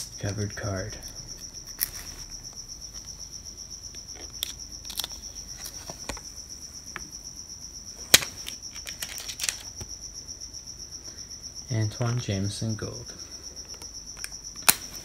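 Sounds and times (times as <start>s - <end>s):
cricket chirping: 0.0s - 15.0s
foil wrapper crinkling: 8.4s - 9.8s.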